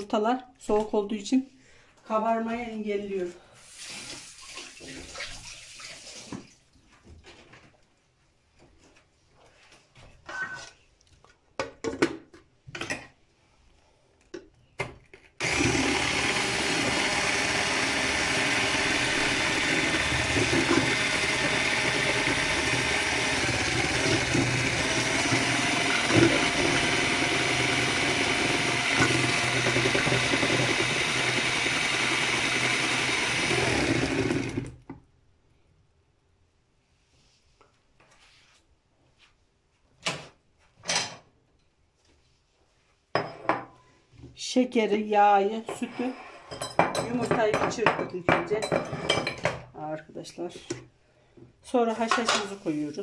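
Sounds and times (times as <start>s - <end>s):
electric hand mixer whisking: 15.4s - 34.8s.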